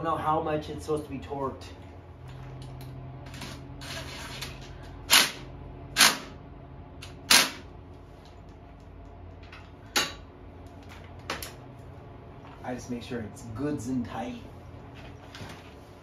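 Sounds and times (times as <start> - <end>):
impact wrench hammering: 5.1 - 6.4, 7.0 - 7.7.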